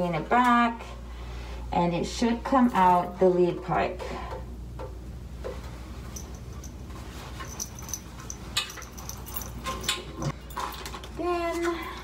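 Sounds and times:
handling noise with high squeaks: 0:06.0 - 0:11.8.

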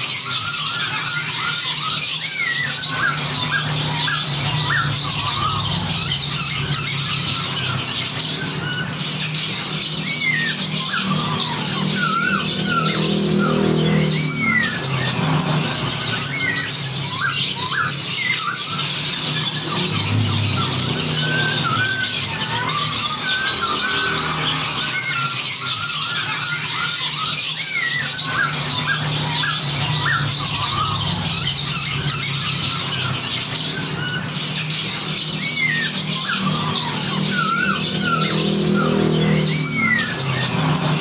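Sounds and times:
chorus of songbirds: 0:00.0 - 0:41.0.

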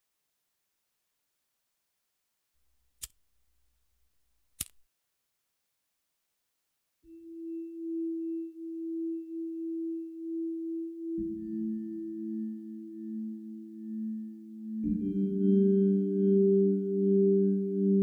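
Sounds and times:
pocket lighter clicks: 0:04.6 - 0:04.8.

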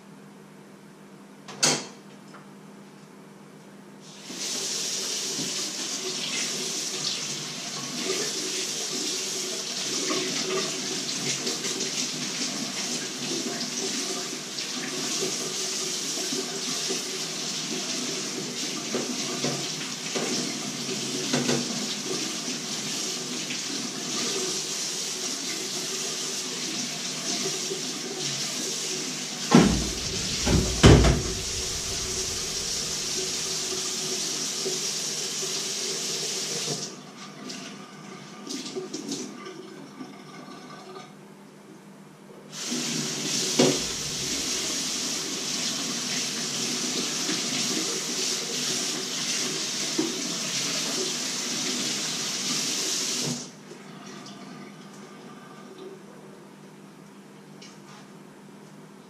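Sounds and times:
tap running into sink: 0:05.3 - 0:05.6, 0:29.5 - 0:33.9, 0:43.4 - 0:45.1
loud knocks on sink: 0:29.5 - 0:32.6.

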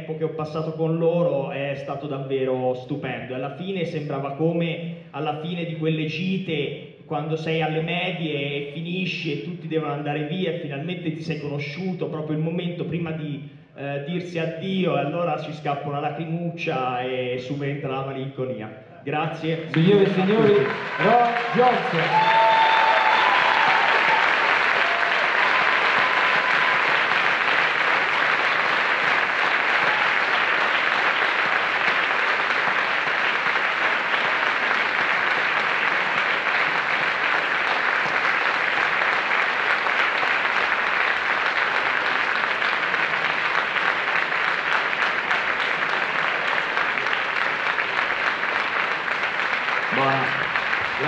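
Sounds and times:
audience applauding: 0:19.6 - 0:51.0.

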